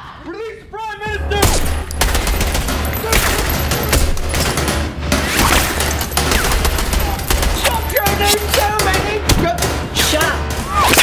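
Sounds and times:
rapid gunfire: 2.0s - 8.9s.

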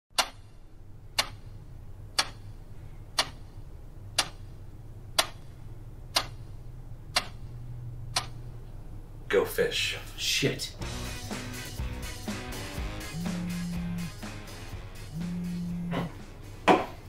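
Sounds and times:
clock ticking: 0.1s - 0.5s, 1.1s - 1.5s, 2.1s - 2.5s, 3.2s - 3.5s, 4.2s - 4.4s, 5.2s - 5.5s, 6.1s - 6.4s, 7.1s - 7.4s, 8.1s - 8.4s, 10.8s - 15.9s
low steady hum: 0.2s - 17.0s.

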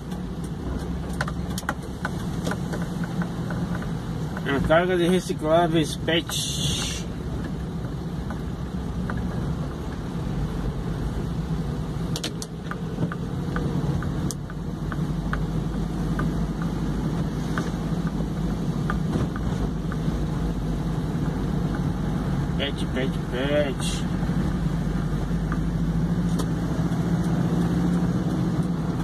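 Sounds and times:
light ticks: 0.0s - 5.6s, 12.1s - 20.5s
tyres on wet road: 0.0s - 29.0s
vehicle engine from inside cab: 0.0s - 29.0s.

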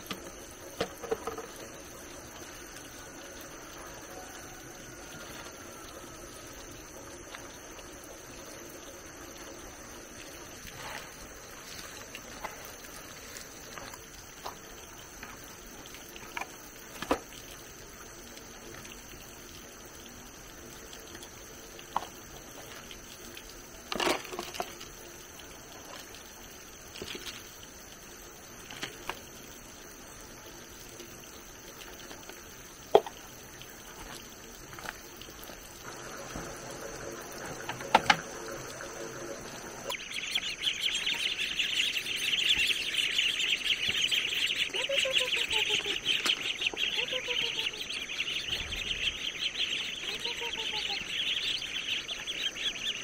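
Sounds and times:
ducklings peeping: 39.8s - 53.0s.

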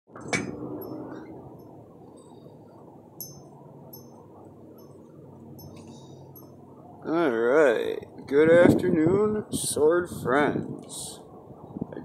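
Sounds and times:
low outdoor rumble: 0.1s - 12.0s
high tinkling notes: 0.7s - 2.5s, 3.1s - 6.8s.

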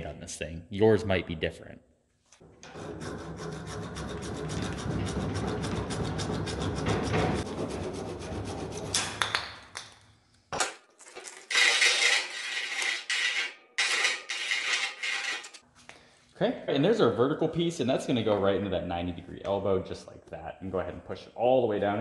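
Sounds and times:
hacksaw sawing plastic pipe: 2.6s - 9.1s, 11.5s - 15.6s
pipe scratching on sandpaper disc: 2.7s - 8.9s, 11.5s - 15.6s.

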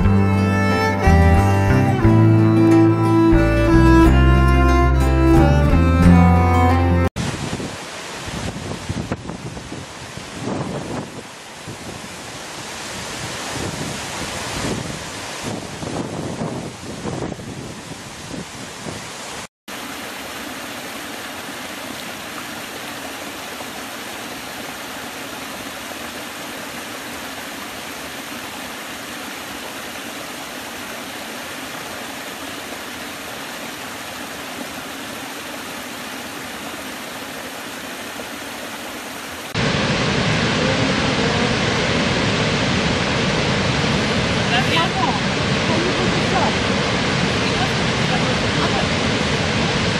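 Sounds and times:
river rapids: 0.0s - 15.9s, 18.1s - 49.9s
wind on microphone: 7.2s - 19.4s
huge waterfall roaring: 7.2s - 49.9s.

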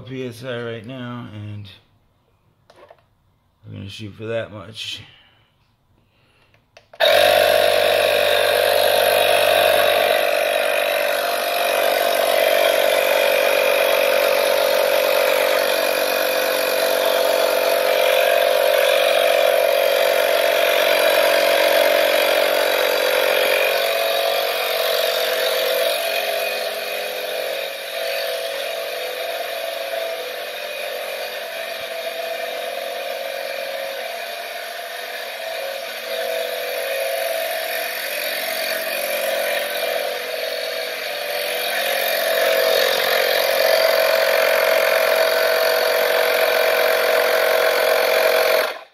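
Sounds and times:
portable tire inflator compressor: 5.6s - 48.9s.

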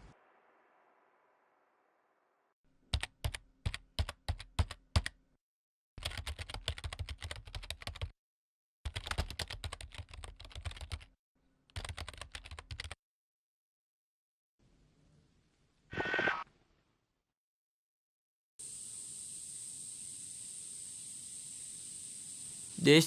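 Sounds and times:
rapid keystrokes: 3.0s - 5.1s, 6.0s - 8.1s, 8.9s - 11.1s, 11.8s - 13.0s.

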